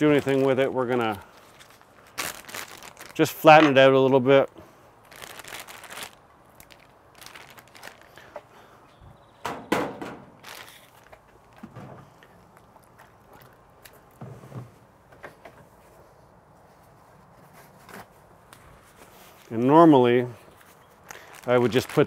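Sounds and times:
plastic bag rustling: 0.0 - 4.1, 5.0 - 8.3, 10.2 - 11.7, 20.6 - 22.0.

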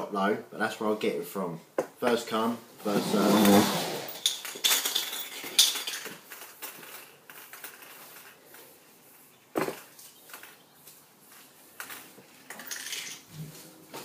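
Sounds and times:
spray can ball rattling: 4.1 - 8.7, 11.8 - 13.3.

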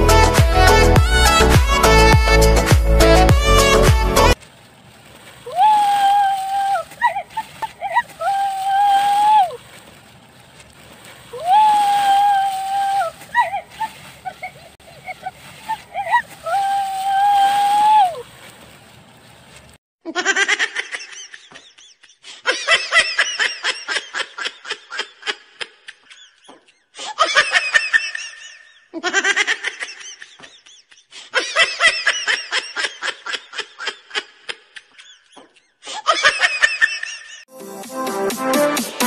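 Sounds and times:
person laughing hard: 5.5 - 9.6, 11.4 - 18.0.

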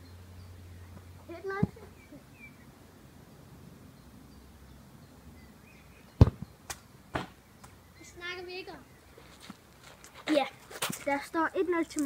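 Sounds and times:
dull thuds: 6.2 - 6.5.

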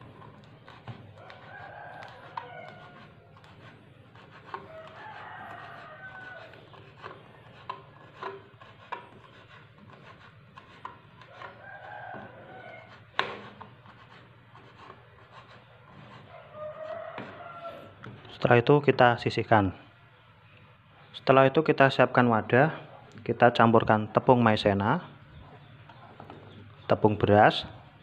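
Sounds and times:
chicken calling: 1.2 - 3.3, 16.2 - 18.0.

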